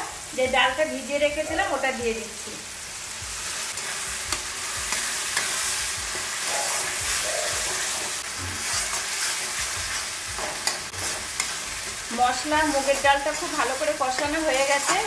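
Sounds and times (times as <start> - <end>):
lentils sizzling in hot oil: 0.0 - 15.0
metal spatula scraping pan: 3.8 - 13.5.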